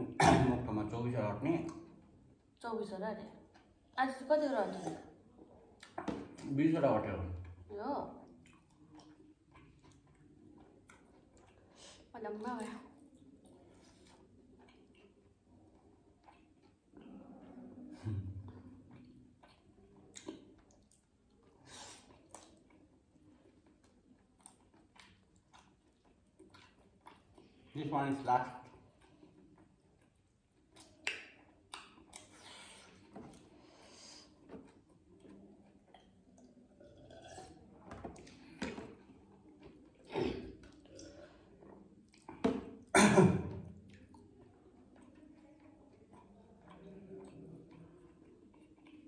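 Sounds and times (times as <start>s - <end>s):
quiet chewing: 3.2s - 6.4s, 7.4s - 49.0s
sipping and swallowing: 34.2s - 43.0s.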